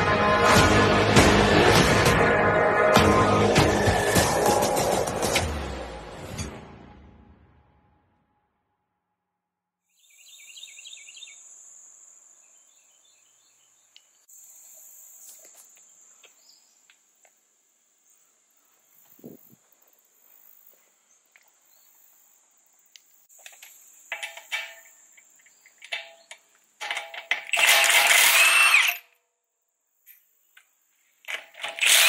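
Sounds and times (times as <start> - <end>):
bird chirps: 9.9 - 11.6
impact wrench bursts: 26.8 - 29.1, 31.3 - 32.0.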